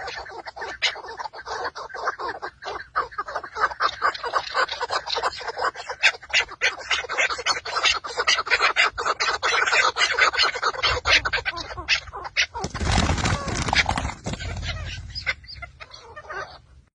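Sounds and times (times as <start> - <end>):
partridges clucking: 12.5 - 16.1.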